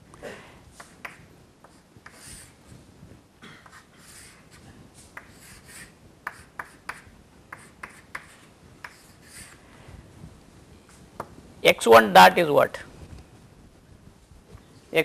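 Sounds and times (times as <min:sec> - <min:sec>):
chalk tapping on board: 0:00.8 - 0:02.6, 0:05.1 - 0:09.6
chalk scratching on chalkboard: 0:00.8 - 0:02.7, 0:03.7 - 0:09.6.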